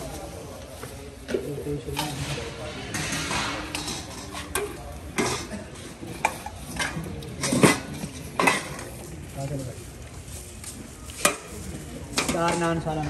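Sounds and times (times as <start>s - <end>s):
metal pots and dishes clanking: 1.2s - 9.1s, 11.2s - 13.0s.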